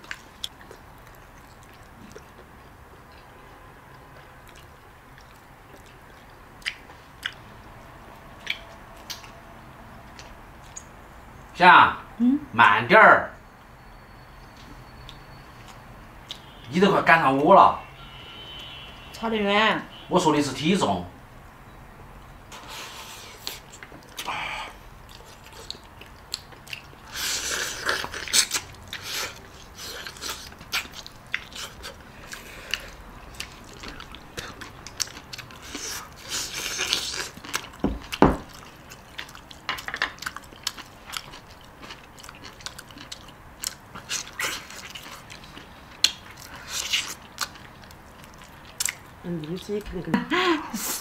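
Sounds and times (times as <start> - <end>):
people chewing and crunching: 0.0 - 10.9, 22.5 - 49.7.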